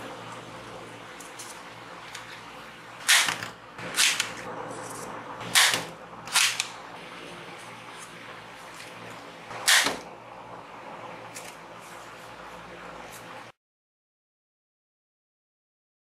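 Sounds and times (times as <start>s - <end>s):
toy dart gun spring snaps: 5.6s - 6.7s, 9.7s - 10.0s.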